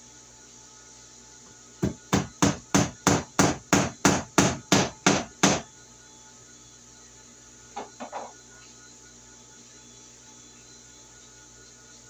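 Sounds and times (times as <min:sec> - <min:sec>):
hammer strikes: 0:01.8 - 0:05.6.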